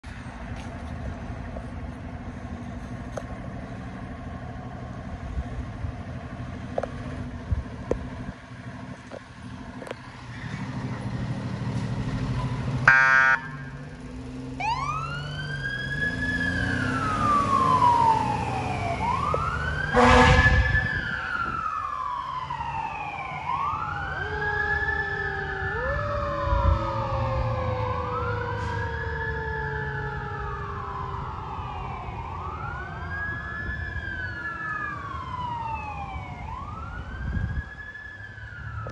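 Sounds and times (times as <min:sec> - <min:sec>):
low siren tone: 0:12.4 - 0:13.9, 0:14.6 - 0:38.9
siren wailing: 0:12.8 - 0:13.8, 0:14.6 - 0:38.9
air horn blast: 0:19.9 - 0:21.1.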